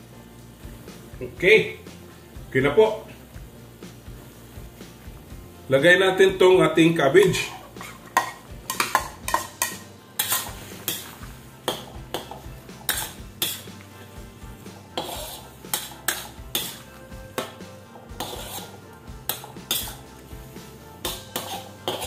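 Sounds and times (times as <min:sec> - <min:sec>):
metal spatula scraping wok: 0:07.2 - 0:22.0.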